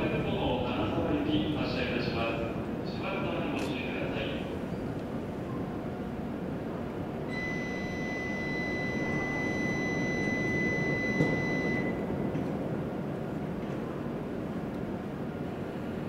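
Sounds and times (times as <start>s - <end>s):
high electronic beep: 7.3s - 12.1s.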